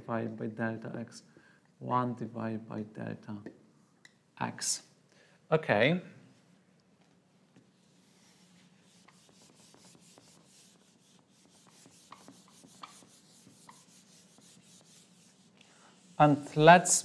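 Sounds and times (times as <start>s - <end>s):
eraser rubbing on whiteboard: 7.8s - 16.6s.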